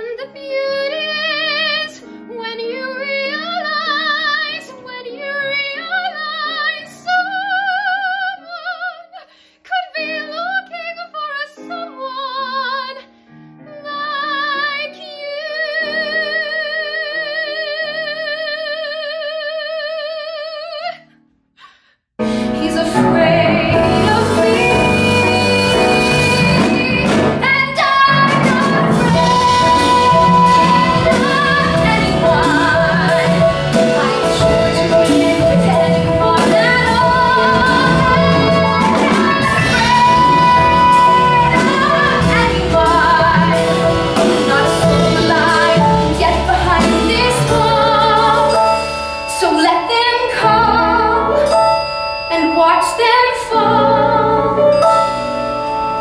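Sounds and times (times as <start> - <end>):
woman singing: 0.0 - 21.1, 22.2 - 55.1
instrumental accompaniment: 22.2 - 56.0.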